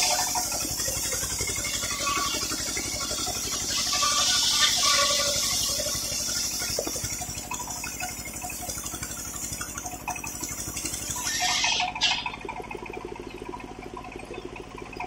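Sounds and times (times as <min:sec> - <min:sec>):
engine pulsing: 0:00.0 - 0:15.0.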